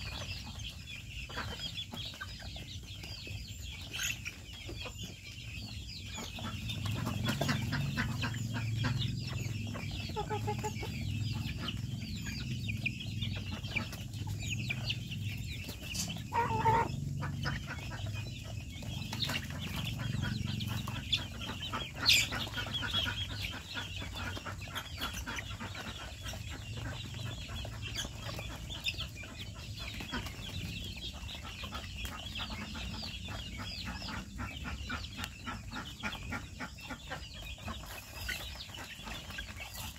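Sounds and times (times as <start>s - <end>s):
chicks peeping: 0.0s - 39.9s
hens clucking: 0.0s - 39.9s
chicken squawk: 6.3s - 12.4s, 15.7s - 18.2s.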